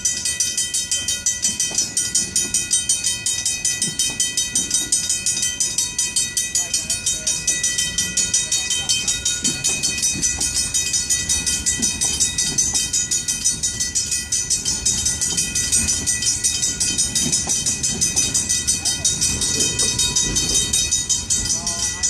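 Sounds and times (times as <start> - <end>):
crossing bells ringing: 0.0 - 22.0
train wheels rumbling on rails: 0.0 - 22.0.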